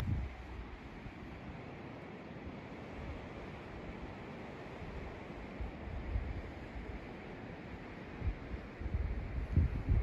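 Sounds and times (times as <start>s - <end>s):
wind buffeting microphone: 0.0s - 0.8s, 8.2s - 10.0s
windy hiss: 0.0s - 10.0s.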